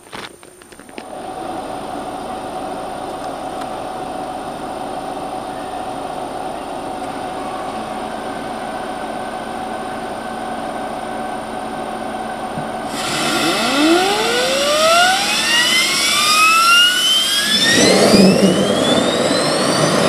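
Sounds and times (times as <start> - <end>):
gas turbine engine whine: 0.0 - 20.0
low hum: 12.9 - 20.0
rushing air: 12.9 - 20.0.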